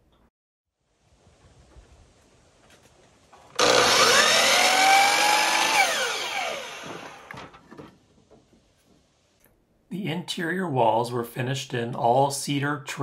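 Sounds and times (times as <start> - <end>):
miter saw cutting wood: 3.5 - 7.4.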